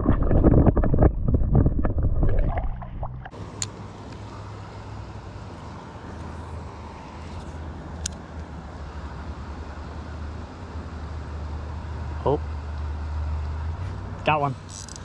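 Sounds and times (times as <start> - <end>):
faint low rumble: 0.0 - 3.3
low knocking and rumble: 0.0 - 3.4.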